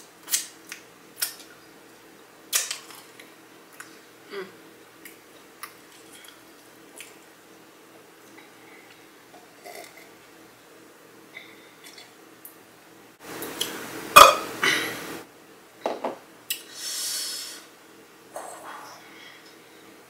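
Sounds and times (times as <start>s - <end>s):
person burping: 14.2s - 14.9s.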